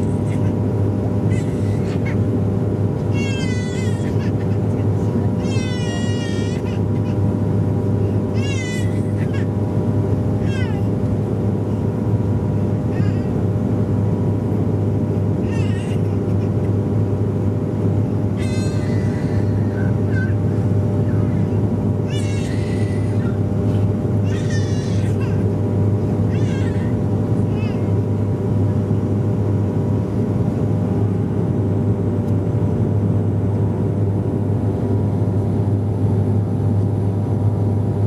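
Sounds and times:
aircraft cabin propeller drone: 0.0 - 38.0
small child crying: 1.3 - 2.3, 3.1 - 7.3, 8.2 - 9.7, 10.4 - 11.0, 15.4 - 16.7, 18.3 - 23.5, 24.2 - 25.6, 26.2 - 28.1.

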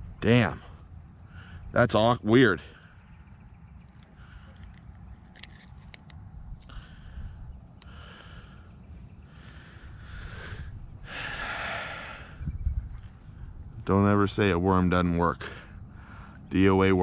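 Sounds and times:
metal pliers clicking and scraping: 4.6 - 6.8.

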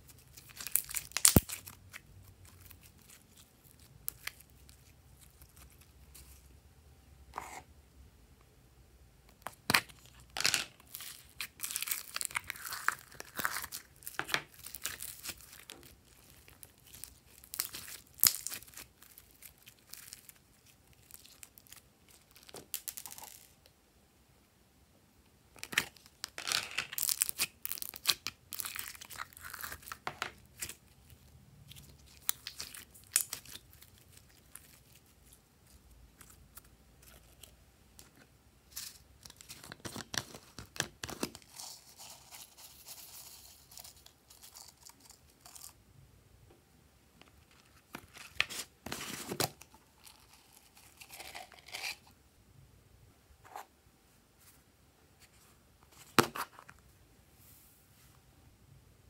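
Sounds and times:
slime crackling and popping: 0.2 - 3.4, 10.9 - 23.3.

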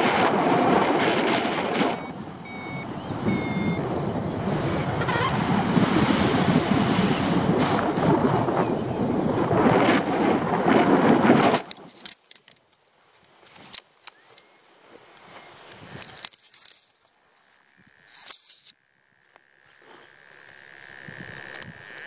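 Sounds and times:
wind rushing over microphone: 0.0 - 12.0, 21.0 - 22.0.

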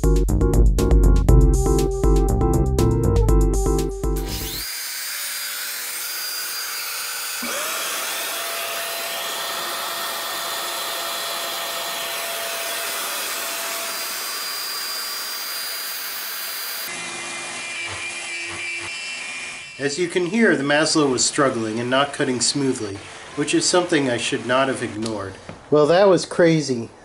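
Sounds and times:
router spindle cutting wood: 4.2 - 25.4.

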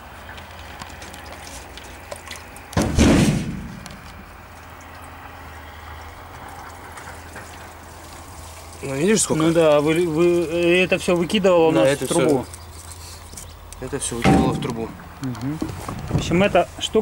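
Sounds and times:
heavy thump: 2.8 - 4.0.

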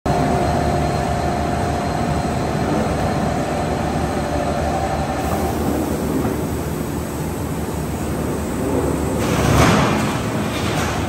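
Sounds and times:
machine whine: 0.1 - 11.0
machine mechanical rumble: 5.0 - 11.0.

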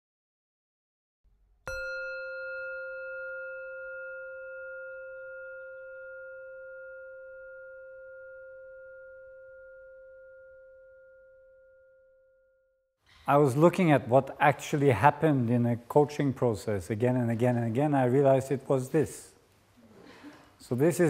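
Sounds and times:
singing bowl ringing: 1.7 - 12.9.

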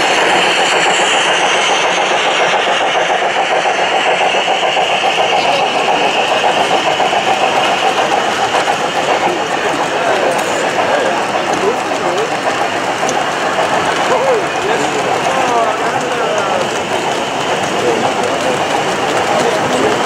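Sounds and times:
model train rumbling on track: 0.0 - 20.0.

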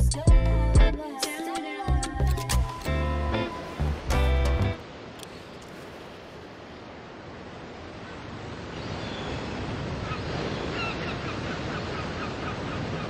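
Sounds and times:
ocean surf washing onto beach: 2.9 - 13.0.

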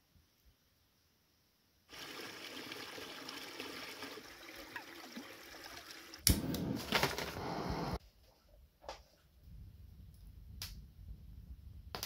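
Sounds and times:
stream trickling over stones: 1.9 - 6.2
gas stove hissing: 6.3 - 8.0.

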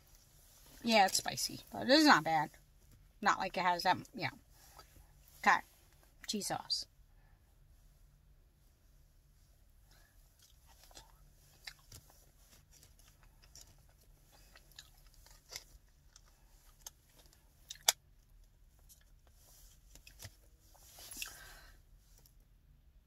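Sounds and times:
chewing and wet mouth sounds: 9.9 - 21.5.

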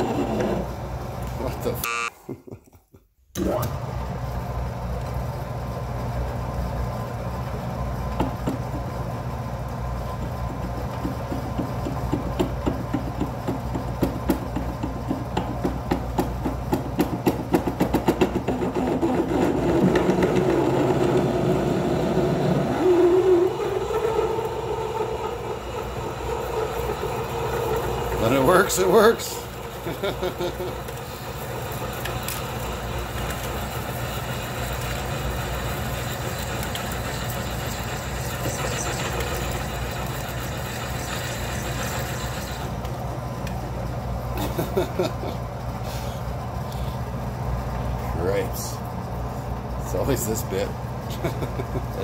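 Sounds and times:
metal lathe drilling: 21.6 - 29.8, 31.6 - 42.8
rattling drill chatter: 25.1 - 29.8.

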